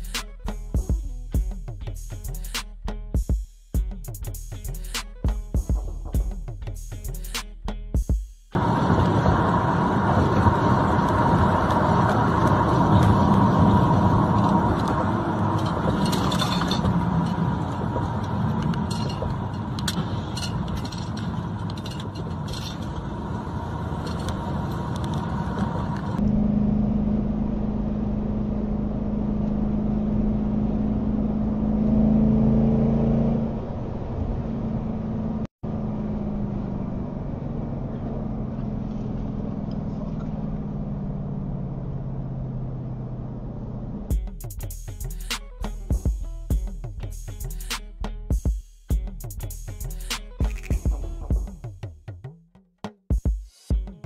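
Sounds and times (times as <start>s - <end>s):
car engine and tyre hum: 4.2s - 48.3s
steady whine: 8.6s - 31.2s
road and wind noise: 8.6s - 48.4s, 49.0s - 51.8s.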